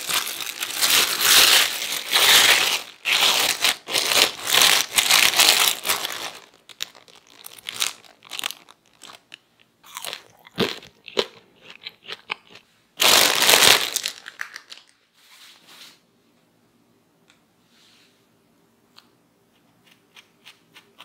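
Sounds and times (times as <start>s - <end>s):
plastic bag crinkling: 0.0s - 11.3s, 13.0s - 15.0s.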